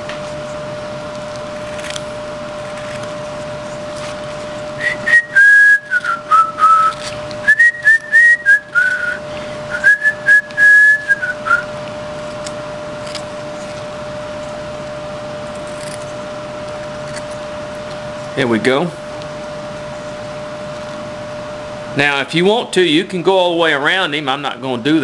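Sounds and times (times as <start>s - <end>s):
steady low hum: 0.0s - 25.0s
person whistling a tune: 4.8s - 11.7s.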